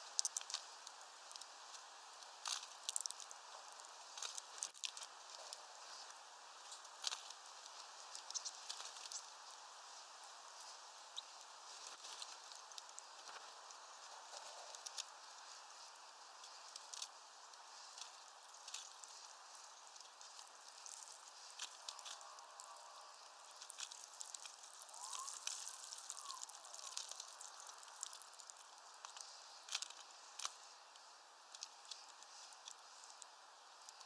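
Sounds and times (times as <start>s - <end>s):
soft steady hiss: 0.0s - 34.0s.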